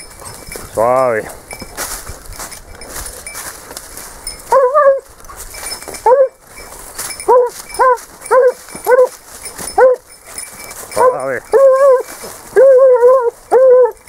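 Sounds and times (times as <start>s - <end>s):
hound baying: 0.0s - 1.7s, 4.3s - 14.0s.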